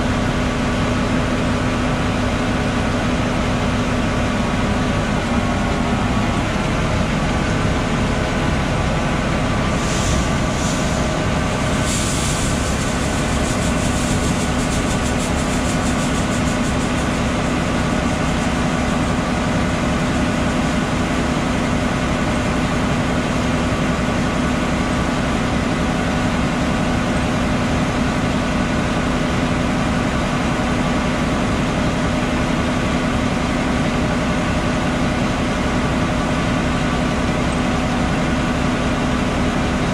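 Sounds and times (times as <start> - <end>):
tractor engine drone: 0.0 - 39.9.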